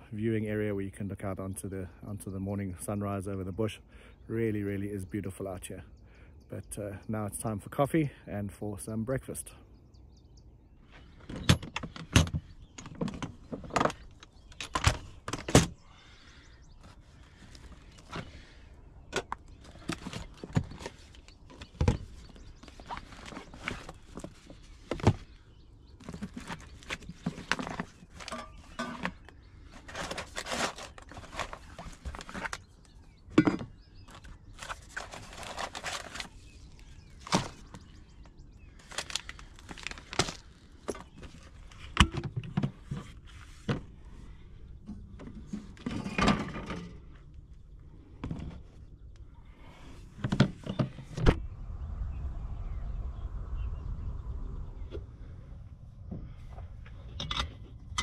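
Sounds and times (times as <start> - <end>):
plastic pouches rustling: 29.7 - 32.8, 34.1 - 37.8, 38.7 - 41.9.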